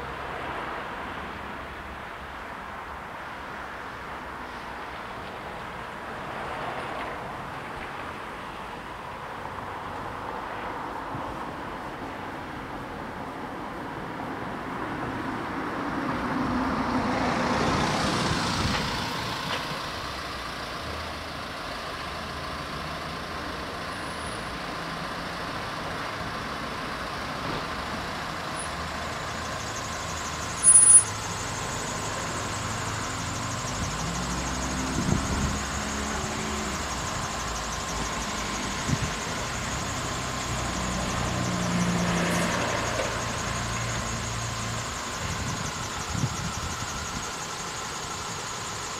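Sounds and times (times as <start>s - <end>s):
cars idling: 17.0s - 48.9s
level crossing warning bell: 28.7s - 34.6s
short sharp high beep: 30.6s - 31.2s.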